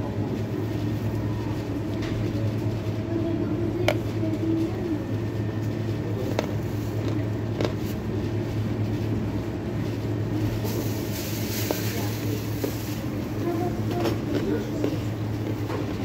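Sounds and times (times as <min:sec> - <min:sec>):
extractor fan humming: 0:00.0 - 0:16.0
crunchy chewing: 0:05.9 - 0:08.4, 0:13.8 - 0:16.0.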